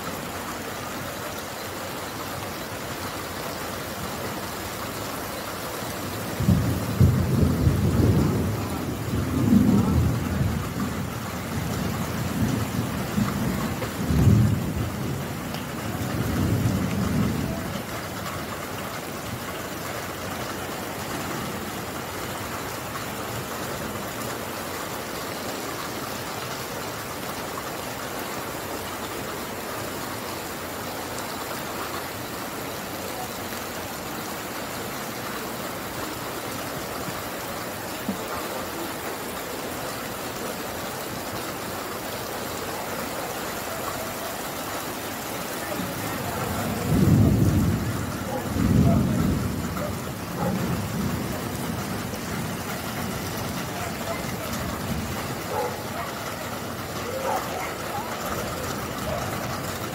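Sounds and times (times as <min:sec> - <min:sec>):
rain falling: 0:00.0 - 0:59.9
thunder rumbling: 0:06.0 - 0:24.0, 0:45.1 - 0:59.9.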